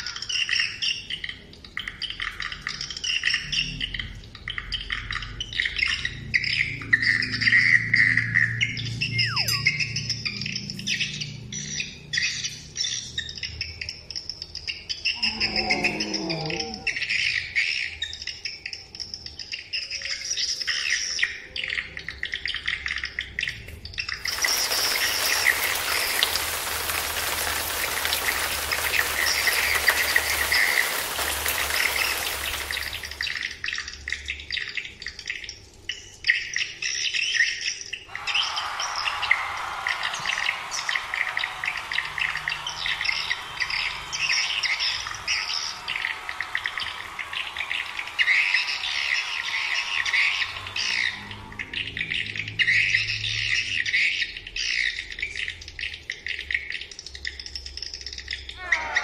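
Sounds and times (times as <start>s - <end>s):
high-pitched bird twittering: 5.8s - 14.0s
steady hiss: 24.3s - 33.3s.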